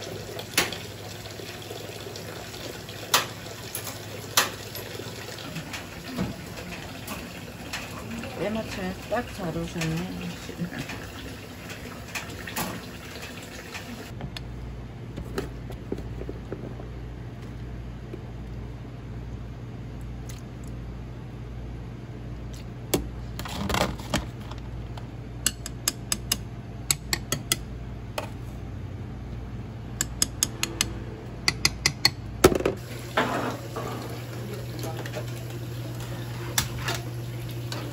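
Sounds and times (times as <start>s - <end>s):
low kitchen hum: 0.0s - 37.9s
ladle clacking against bowls: 25.4s - 27.6s, 30.0s - 32.3s.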